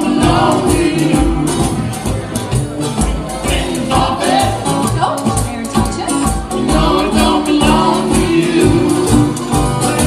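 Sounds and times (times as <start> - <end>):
voices singing together: 0.0 - 2.2, 3.4 - 5.0, 6.0 - 10.0
jug band playing: 0.0 - 10.0.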